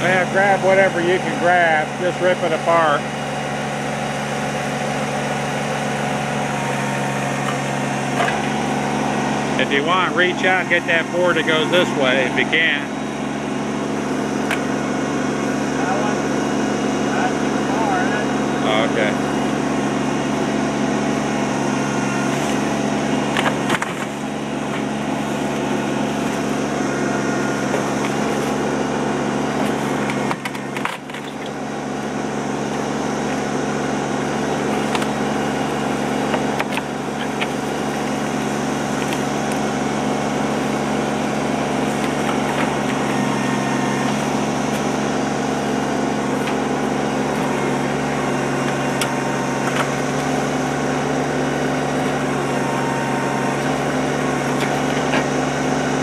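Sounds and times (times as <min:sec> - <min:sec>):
diesel excavator engine running: 0:00.0 - 0:56.0
wood cracking and knocking: 0:36.3 - 0:38.2.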